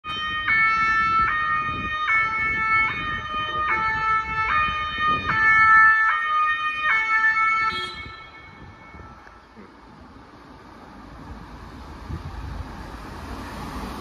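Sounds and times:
ambulance two-tone siren: 0.0 - 9.6
low road rumble: 0.0 - 14.0.

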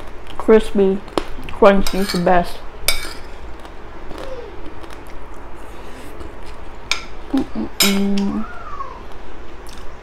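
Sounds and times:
metal spoon clinking on plate: 1.8 - 3.4, 7.8 - 8.2
person chewing crispy food: 3.4 - 6.7.

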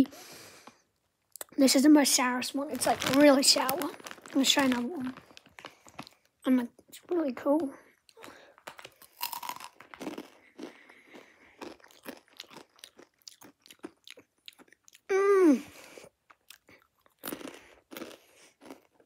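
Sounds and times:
chips crunching while chewed: 2.7 - 6.3, 8.1 - 15.1, 16.2 - 19.0.

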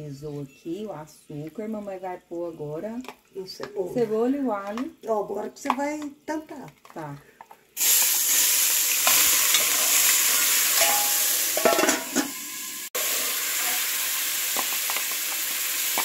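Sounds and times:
onion and garlic sizzling in oil: 0.0 - 6.6, 7.2 - 16.0.

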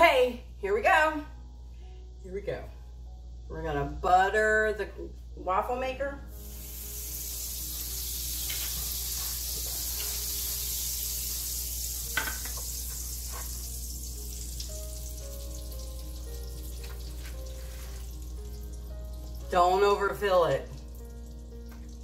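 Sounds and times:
butter sizzling on waffle iron: 6.3 - 20.7.

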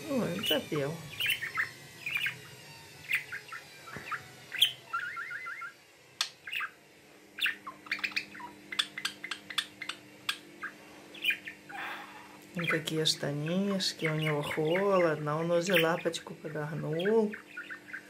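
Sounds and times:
budgerigar chirping and clicking: 0.4 - 6.8, 7.4 - 11.7, 17.0 - 18.0.

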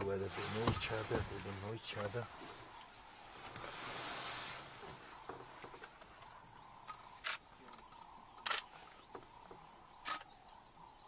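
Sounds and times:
crickets chirping: 0.0 - 11.0
sharp clicks: 8.4 - 8.7.

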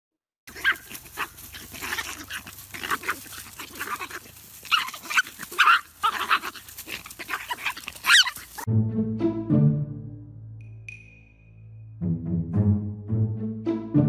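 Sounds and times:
puppies yelping and growling: 0.5 - 8.7.

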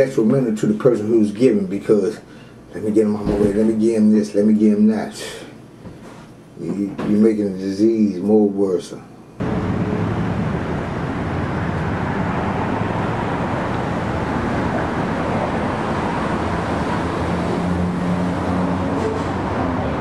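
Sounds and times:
road traffic rush: 9.4 - 20.0.

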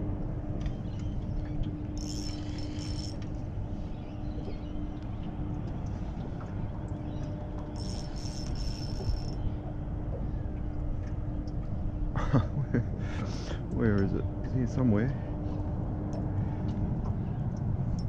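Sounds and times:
low hum: 0.0 - 18.0
fishing reel drag buzzing: 2.0 - 3.3, 7.8 - 9.4.

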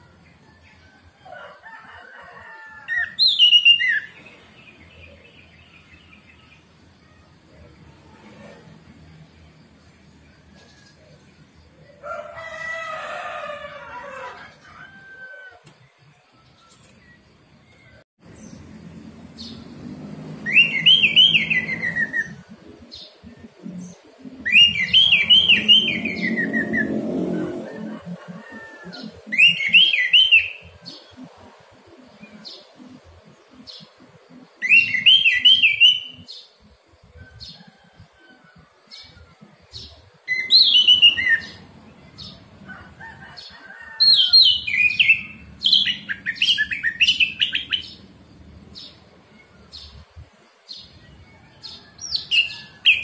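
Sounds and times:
rooster crowing: 0.0 - 4.0, 11.9 - 15.8, 24.4 - 31.0, 37.2 - 39.6, 42.2 - 48.0, 51.1 - 53.0
bird whistling song: 3.0 - 4.2, 20.4 - 22.4, 24.4 - 26.9, 29.4 - 30.8, 34.6 - 36.5, 40.3 - 41.6, 44.1 - 48.0.

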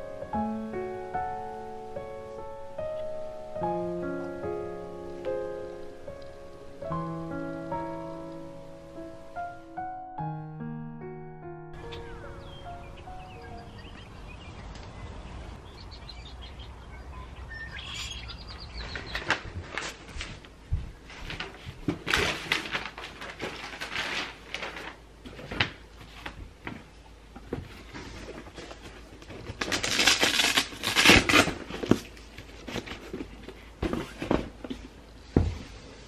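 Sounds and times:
birds chirping faintly: 11.8 - 19.6.

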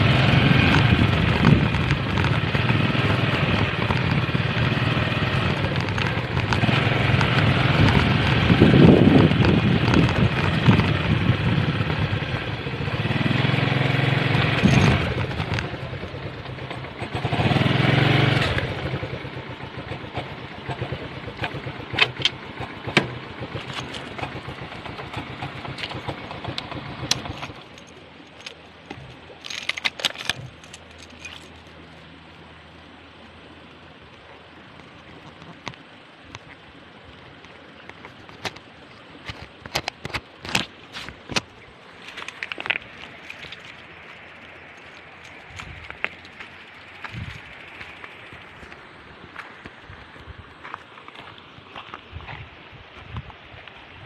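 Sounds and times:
motorcycle engine revving: 0.0 - 27.9.

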